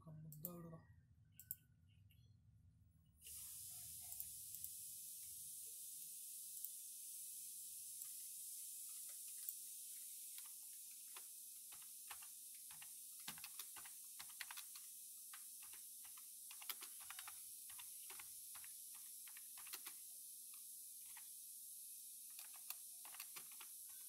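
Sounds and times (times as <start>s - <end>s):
computer keyboard typing: 10.4s - 20.0s, 22.3s - 24.0s.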